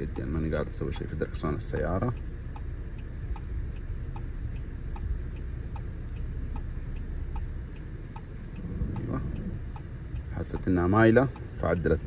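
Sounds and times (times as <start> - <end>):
low cabin hum: 0.0 - 12.0
turn signal tick-tock: 0.0 - 12.0.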